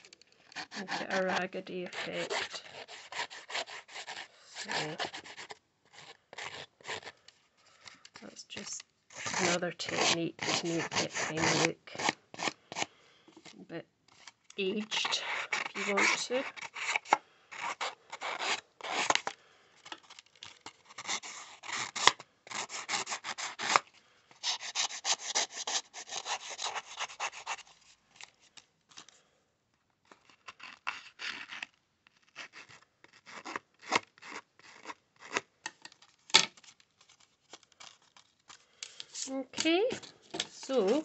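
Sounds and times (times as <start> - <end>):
scissor blade rasping paper edge: 0.4 - 7.1, 9.1 - 12.9, 14.2 - 19.3, 20.0 - 23.8, 24.4 - 27.7.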